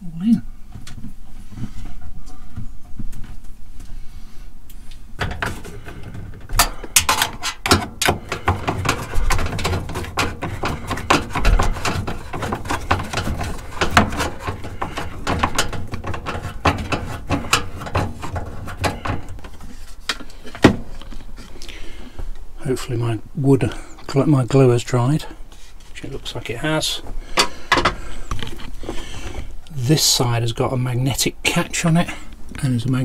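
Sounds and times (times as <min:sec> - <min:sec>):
clicks and clatter of tools: 0:05.2 - 0:21.2.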